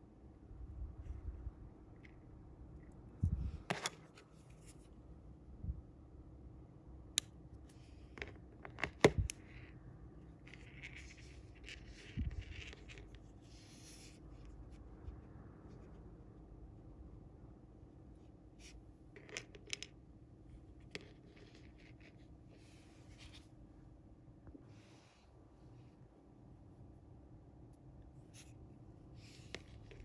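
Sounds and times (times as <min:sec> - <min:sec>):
fishing line rubbing and rustling: 0:10.4 - 0:15.1.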